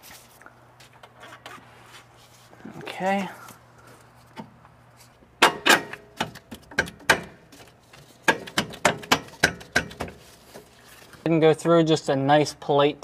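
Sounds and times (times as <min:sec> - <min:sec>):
metallic clicks and knocks: 0:05.4 - 0:10.2.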